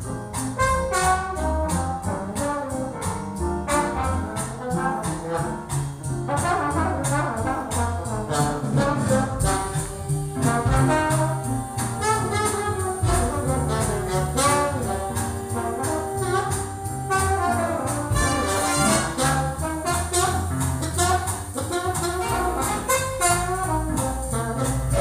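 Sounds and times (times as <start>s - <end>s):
brass-led jazz over loudspeakers: 0.0s - 25.0s.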